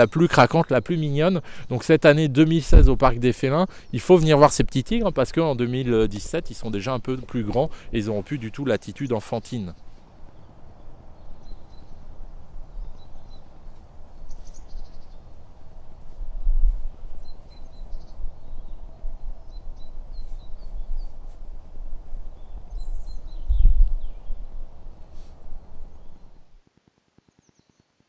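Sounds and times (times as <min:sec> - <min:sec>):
small birds chirping: 0:00.0 - 0:26.4
low outdoor hiss: 0:00.0 - 0:28.0
low rumbles on microphone: 0:09.7 - 0:26.6.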